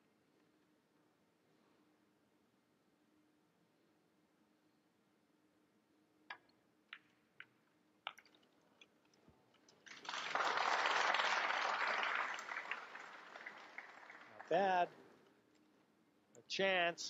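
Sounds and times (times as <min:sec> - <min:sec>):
pool balls clicking: 0:06.3 - 0:10.0
audience applause: 0:09.8 - 0:14.9.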